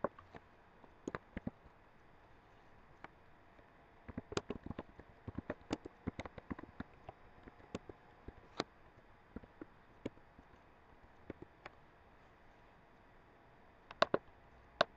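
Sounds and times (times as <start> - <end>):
keyboard key clicks: 4.1 - 8.7, 13.9 - 14.2.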